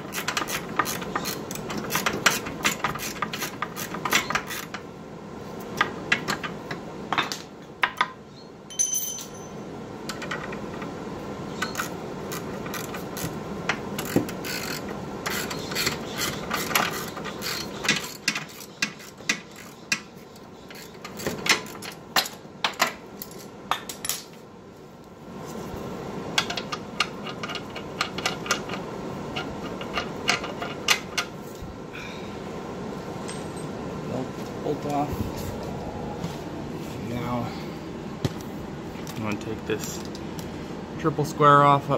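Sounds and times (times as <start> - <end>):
steady background hum: 0.0 - 41.9
hand tools clinking on metal: 8.7 - 9.6.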